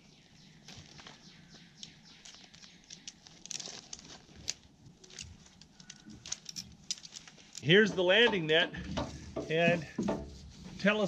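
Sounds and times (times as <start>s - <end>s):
net mesh rustling: 2.2s - 11.0s.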